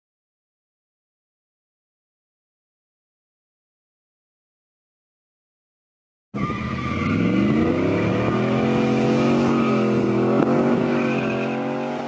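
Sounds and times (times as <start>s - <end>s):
pickup truck engine accelerating: 6.4s - 12.0s.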